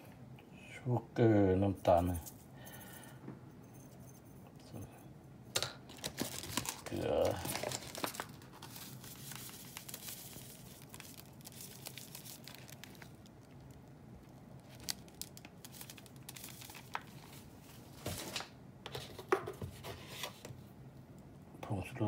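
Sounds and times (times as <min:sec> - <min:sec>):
packaging rustling and crinkling: 0:05.9 - 0:20.5.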